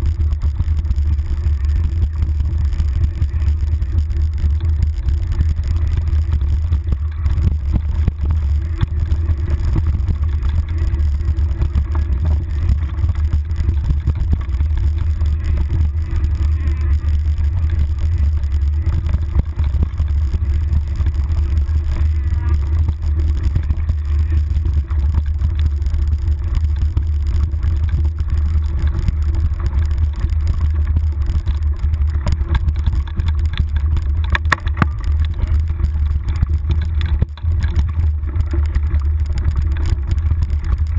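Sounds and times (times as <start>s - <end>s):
bike rattling and knocking: 0.0s - 40.9s
low rumble of wind: 0.0s - 40.9s.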